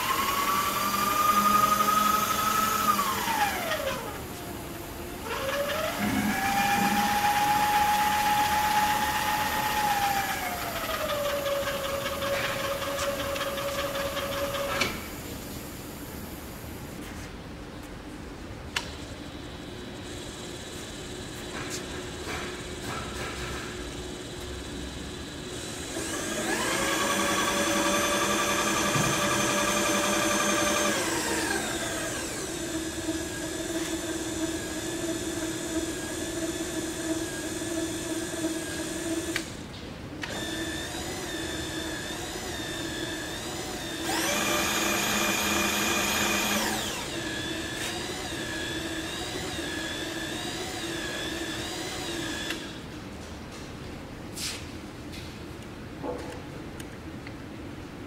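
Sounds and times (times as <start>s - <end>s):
milling machine feed motor whine: 0.0s - 15.0s, 24.2s - 39.5s, 40.2s - 52.8s.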